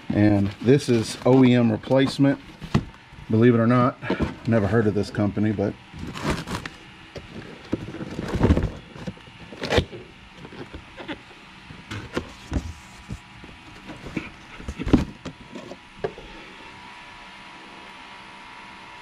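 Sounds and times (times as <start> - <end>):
packaging rustling: 0.1 - 3.0, 5.9 - 11.2.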